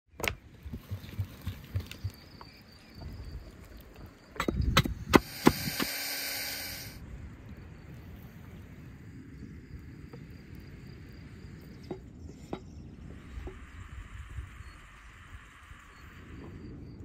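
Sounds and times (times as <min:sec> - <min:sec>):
rushing hiss: 0:05.1 - 0:07.0.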